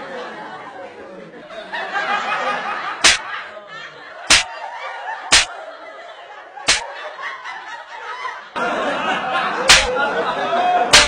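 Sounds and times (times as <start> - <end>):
people laughing: 0.0 - 11.0
hand slaps on skin: 3.0 - 3.2, 6.7 - 6.9, 9.7 - 10.0.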